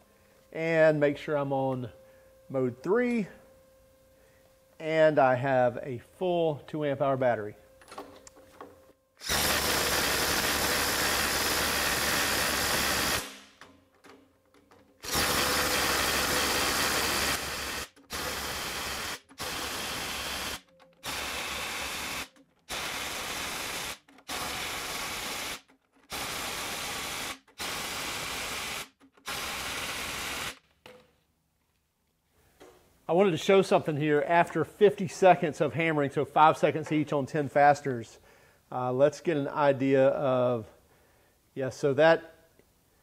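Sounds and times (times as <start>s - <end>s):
impact driver hammering nuts: 9.2s - 31.1s.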